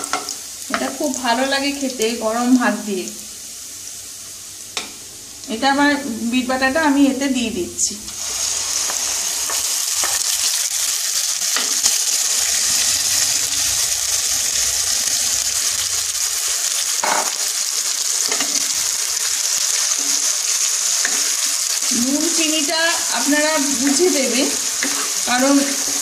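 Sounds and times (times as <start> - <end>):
paste sizzling in hot oil: 0.0 - 26.0
spatula scraping and tapping pan: 8.8 - 10.3, 24.8 - 25.2.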